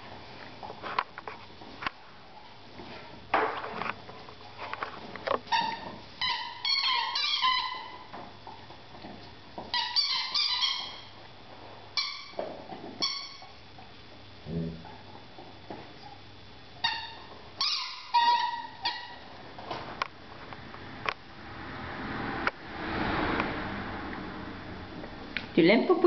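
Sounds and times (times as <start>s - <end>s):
squeaky dog toy squeaks: 5.5s - 8.1s, 9.7s - 11.1s, 12.0s - 12.4s, 13.0s - 13.5s, 16.8s - 19.2s.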